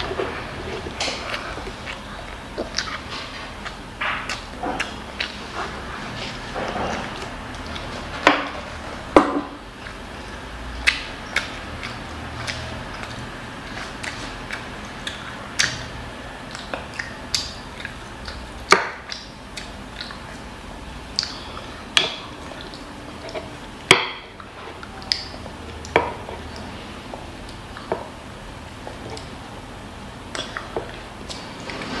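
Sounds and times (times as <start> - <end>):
child chewing and lip-smacking: 0.0 - 32.0.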